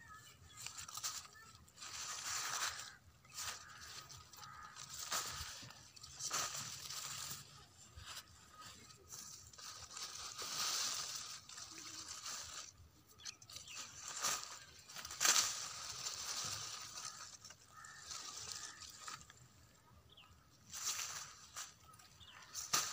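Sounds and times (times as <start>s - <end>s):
leaves rustling and crackling: 0.0s - 22.9s.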